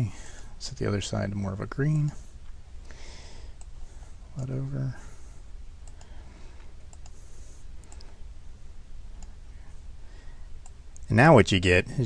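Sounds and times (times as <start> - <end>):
low steady hum: 0.0 - 12.0
computer mouse clicks: 5.8 - 6.2, 6.8 - 8.2, 9.2 - 9.4.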